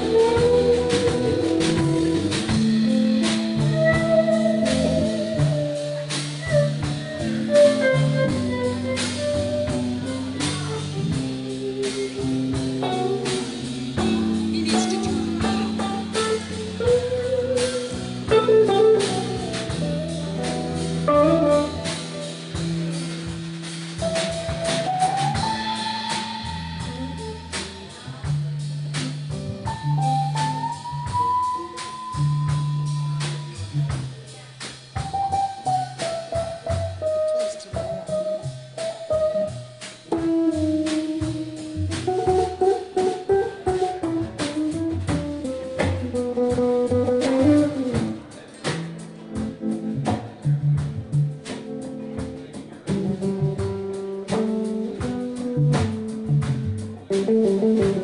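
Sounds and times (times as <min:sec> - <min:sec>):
electric guitar lead with bends: 0:00.0 - 0:27.9
bass guitar: 0:00.0 - 0:58.0
drum kit: 0:00.0 - 0:58.0.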